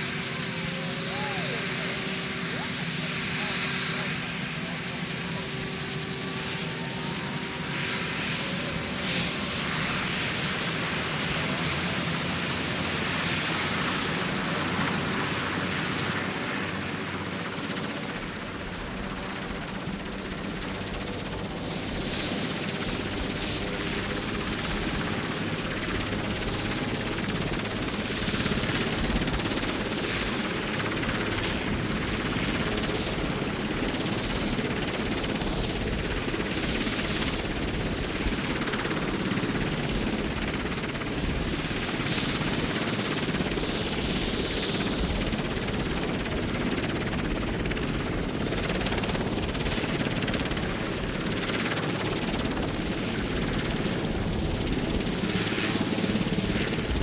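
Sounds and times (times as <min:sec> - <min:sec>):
helicopter turbine and rotor: 0:00.0 - 0:57.0.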